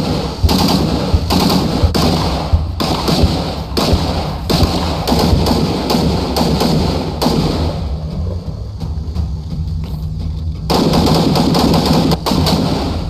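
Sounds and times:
rifle gunfire: 0.0s - 8.1s, 10.7s - 13.0s.

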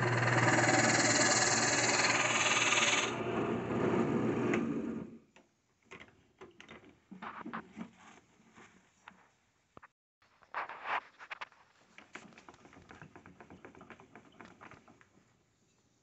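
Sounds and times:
drill press boring into wood: 0.0s - 4.8s.

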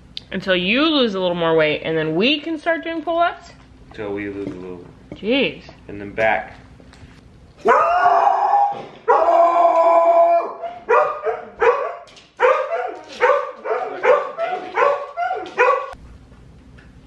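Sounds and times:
dog yipping and barking: 7.6s - 9.4s, 10.6s - 16.0s
dog howling: 7.6s - 16.0s.

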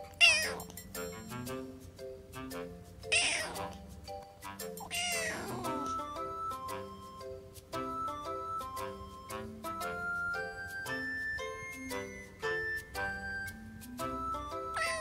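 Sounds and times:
kitten meowing: 0.2s - 0.6s, 3.1s - 3.6s, 4.9s - 5.8s, 14.7s - 15.0s.

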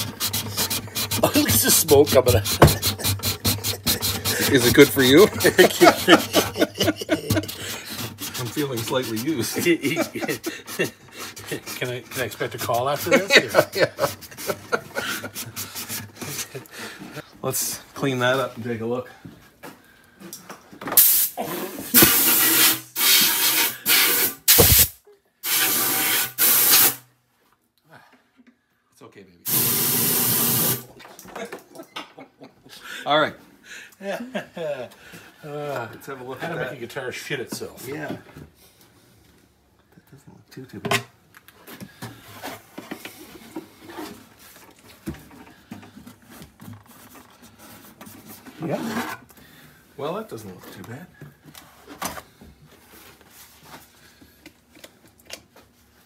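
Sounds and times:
compressed air blow gun hissing: 21.0s - 27.0s, 29.5s - 30.8s.

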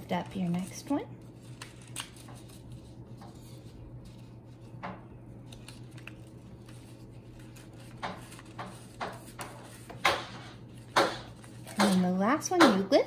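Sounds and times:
paper rustling and sliding: 5.5s - 11.7s.

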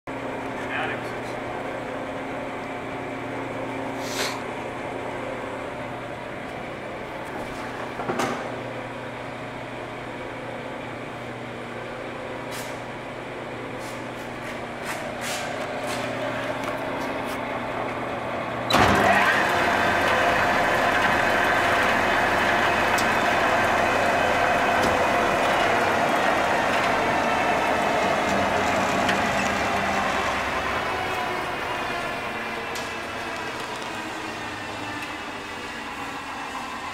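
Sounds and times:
sander machinery humming: 19.1s - 36.9s.

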